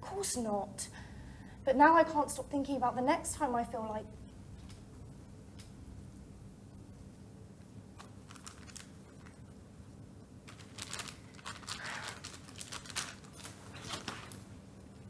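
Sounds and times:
faint low hum: 0.0s - 15.0s
plastic packet crinkling: 8.0s - 9.4s, 10.4s - 14.5s.

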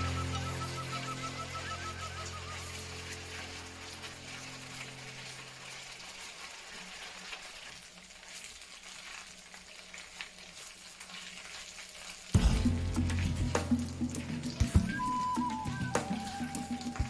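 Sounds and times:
background music: 0.0s - 5.4s, 12.4s - 17.0s
meat sizzling in hot oil: 0.0s - 17.0s.

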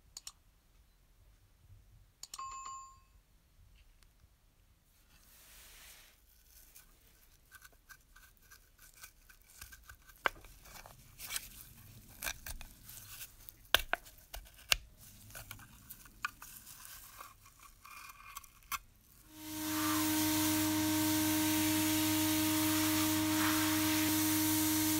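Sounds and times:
sharp clicks: 0.2s - 0.4s.

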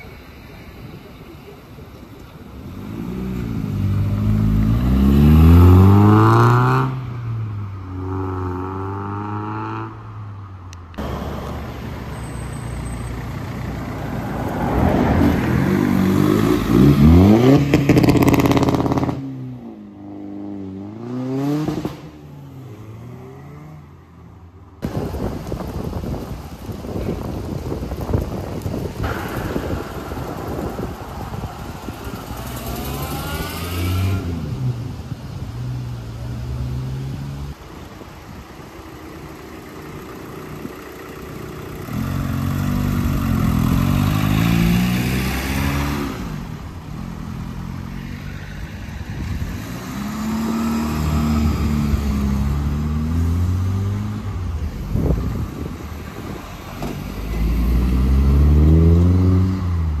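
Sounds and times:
cars accelerating away: 2.6s - 10.0s, 14.0s - 19.6s, 29.0s - 37.6s, 41.6s - 48.1s, 56.6s - 60.0s.

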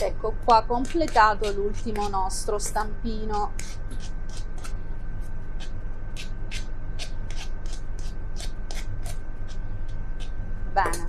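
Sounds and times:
metal spoon scraping ceramic ramekin: 0.5s - 4.7s.

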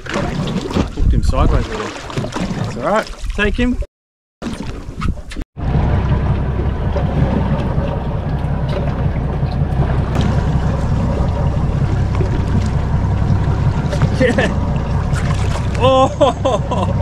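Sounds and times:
water sounds: 0.0s - 17.0s
wind buffeting microphone: 0.6s - 1.9s, 4.8s - 17.0s.

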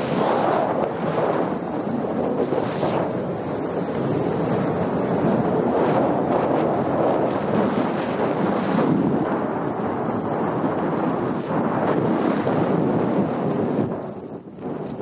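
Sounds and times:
skis hissing on snow: 0.0s - 1.8s
skis scraping on turns: 0.0s - 15.0s
wind rushing over microphone: 0.0s - 15.0s.

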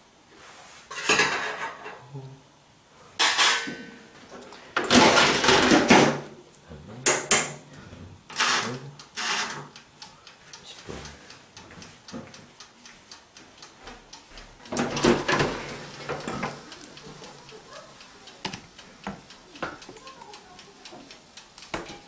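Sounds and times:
mechanical timer ticking: 8.3s - 22.0s
oven door rattling open: 14.8s - 16.5s.

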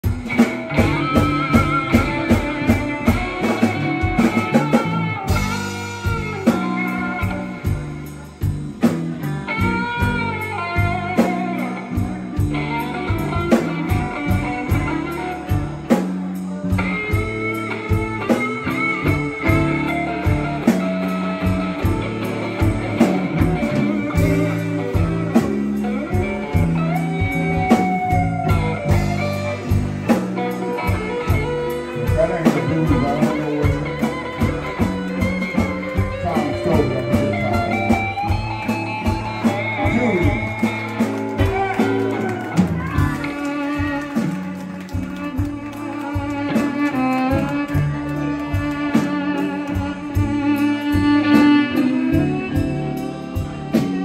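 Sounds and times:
electric guitar lead: 0.0s - 54.0s
steady drum beat: 0.0s - 54.0s.

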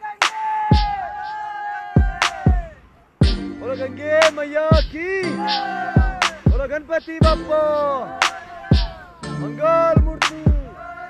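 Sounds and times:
hip-hop background music: 0.0s - 11.0s
deep drum hits: 2.0s - 3.7s, 6.0s - 7.6s, 8.7s - 9.0s.

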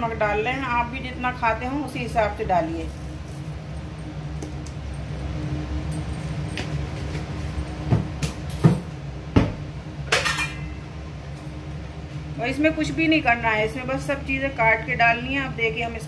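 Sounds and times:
steady low hum: 0.0s - 16.0s
kitchen things clunking: 10.1s - 10.8s.

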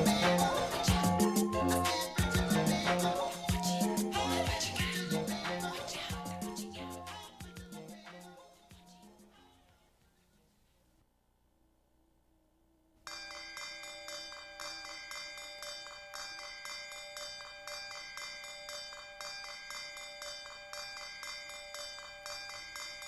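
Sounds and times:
bells ringing in music: 0.0s - 8.4s, 13.1s - 23.0s.

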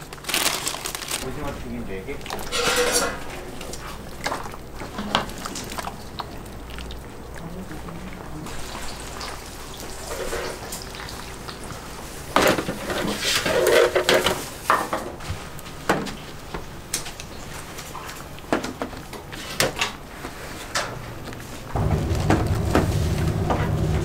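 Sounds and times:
utensils and dishes clattering: 2.2s - 6.2s, 9.9s - 11.2s, 12.3s - 15.2s.

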